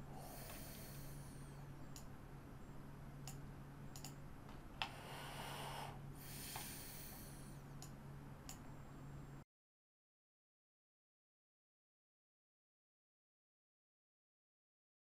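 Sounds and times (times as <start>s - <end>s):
faint steady hum: 0.0s - 9.5s
breath through the nose: 0.1s - 1.3s, 4.9s - 7.5s
computer mouse clicking: 1.9s - 2.1s, 3.2s - 4.2s.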